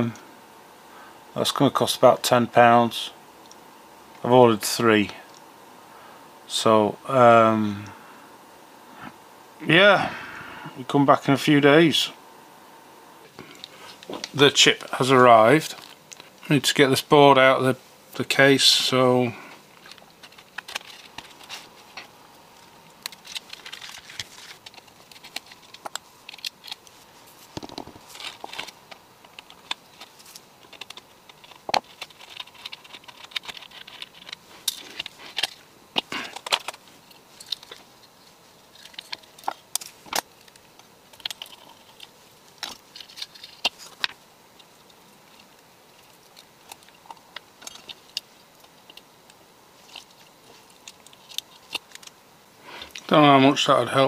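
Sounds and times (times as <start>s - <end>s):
hands handling circuit board: 19.8s - 52.2s.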